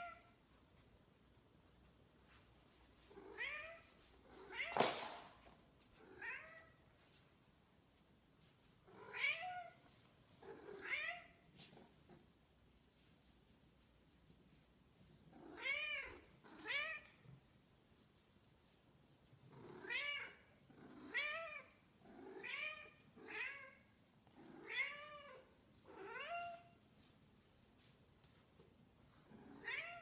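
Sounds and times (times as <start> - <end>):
cat meowing: 29.6 - 30.0.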